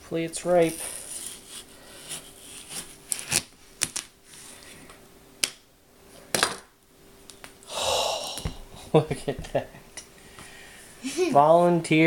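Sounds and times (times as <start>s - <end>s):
knife cutting watermelon rind: 0.6s - 4.0s
rind cracking: 0.6s - 4.1s.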